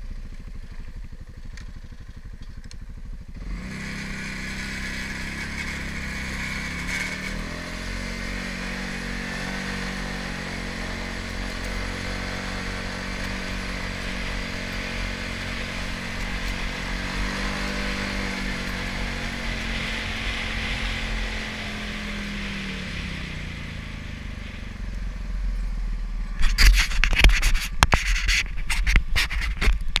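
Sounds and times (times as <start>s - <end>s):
quad bike engine running: 0.0s - 30.0s
wind and tyres on gravel: 0.0s - 30.0s
crackling and knocking on microphone: 26.4s - 30.0s.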